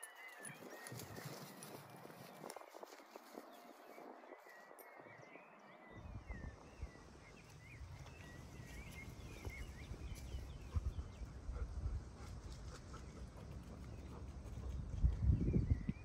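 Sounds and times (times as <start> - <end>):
birds chirping: 0.0 - 16.0
wind buffeting microphone: 0.0 - 16.0.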